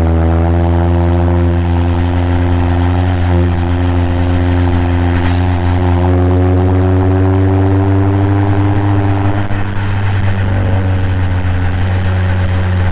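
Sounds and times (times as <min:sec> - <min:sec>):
car exhaust droning: 0:00.0 - 0:12.9.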